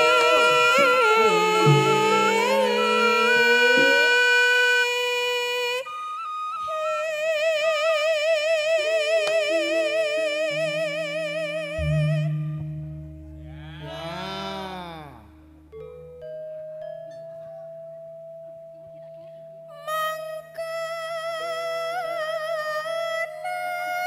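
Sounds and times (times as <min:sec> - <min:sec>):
sliding tone: 0:00.0 - 0:04.7
low sustained accompaniment: 0:00.0 - 0:06.0, 0:09.4 - 0:23.8
woman singing with vibrato: 0:00.0 - 0:12.8, 0:19.7 - 0:24.0.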